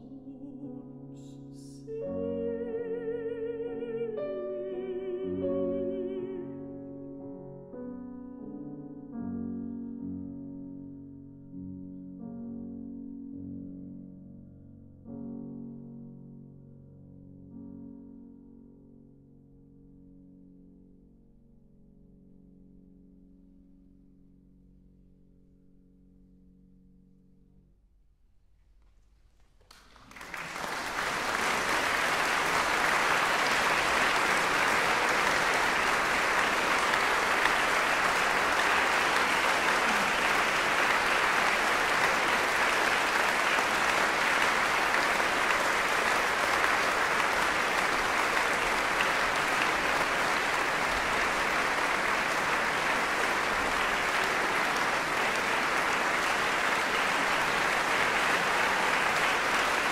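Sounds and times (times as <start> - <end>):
audience applauding: 29.6 - 59.9.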